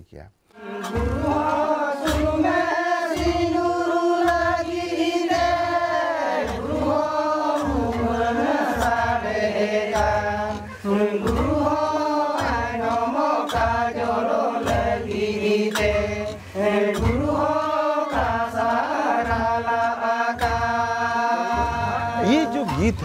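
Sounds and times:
men singing in a group chant: 0:00.6 - 0:23.0
deep plucked string beat: 0:00.9 - 0:23.0.

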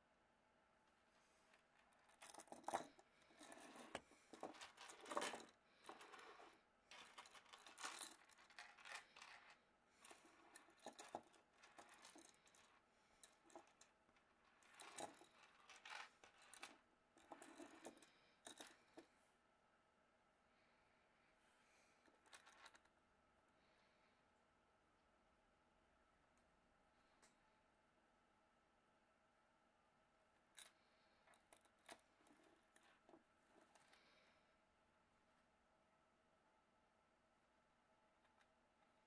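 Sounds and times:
chain scraping on wood: 0:01.8 - 0:13.8, 0:14.5 - 0:18.7
metal chain clinking and rattling: 0:14.6 - 0:18.8.

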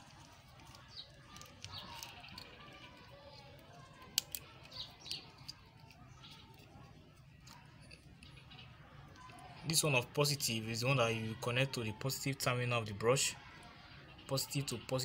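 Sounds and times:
plastic connectors clicking: 0:00.0 - 0:08.4.

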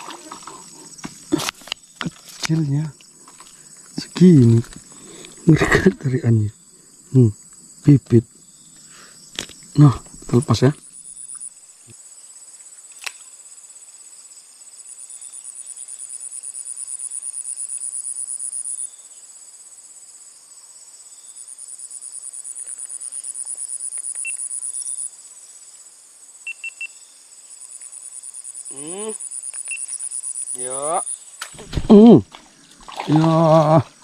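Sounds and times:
fast-pulsing high insect song: 0:00.0 - 0:12.5, 0:20.3 - 0:31.4
insects chirring: 0:00.0 - 0:34.0.

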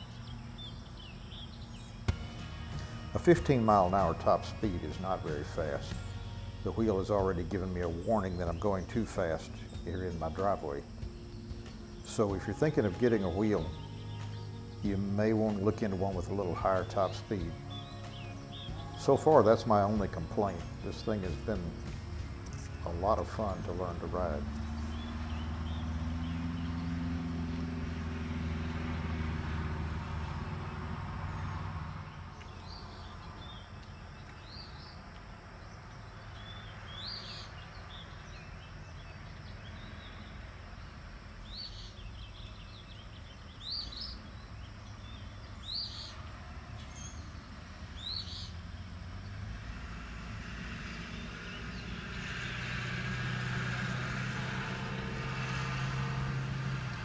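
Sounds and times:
birds chirping: 0:00.0 - 0:57.0
low vehicle engine hum: 0:00.0 - 0:57.0
pickup truck driving past: 0:00.0 - 0:57.0.

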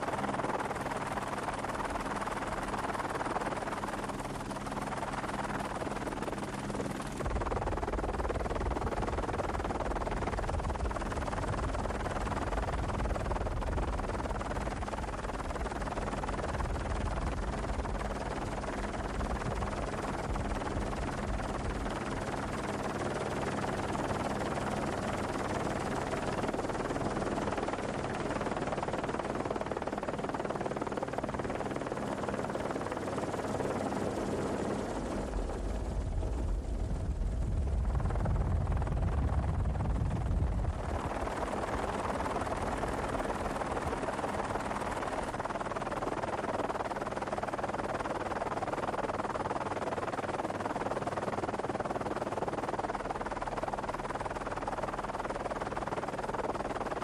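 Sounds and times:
helicopter drone: 0:00.0 - 0:57.0
rushing wind: 0:35.3 - 0:45.1.

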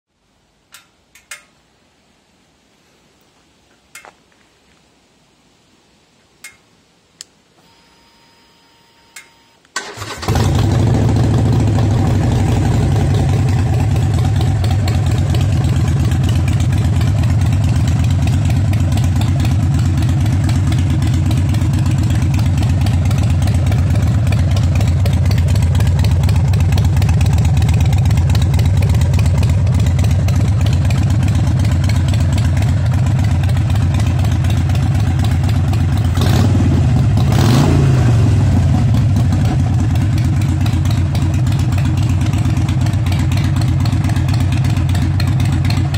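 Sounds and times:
clicks: 0:00.7 - 0:01.6, 0:09.1 - 0:09.8
faint whine: 0:06.2 - 0:09.8
motorcycle engine starting and idling: 0:09.7 - 0:45.9.

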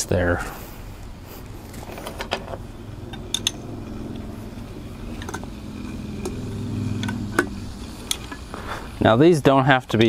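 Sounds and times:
vehicle engine hum: 0:00.4 - 0:10.0
metal clicks of spanner and bolts: 0:01.9 - 0:03.6.

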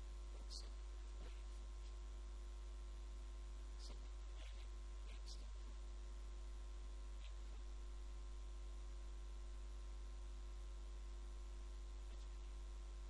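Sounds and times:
electrical mains hum: 0:00.0 - 0:13.0
faint recording hiss: 0:00.0 - 0:13.0.

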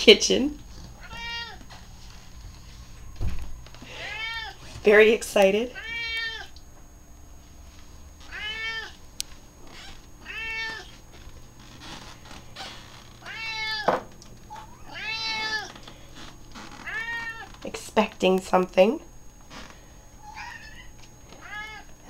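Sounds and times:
cats meowing: 0:01.0 - 0:01.8, 0:03.9 - 0:04.6, 0:05.8 - 0:06.6, 0:08.2 - 0:09.0, 0:09.7 - 0:11.0, 0:12.6 - 0:13.9, 0:14.5 - 0:15.8, 0:16.7 - 0:17.6, 0:20.2 - 0:22.0.

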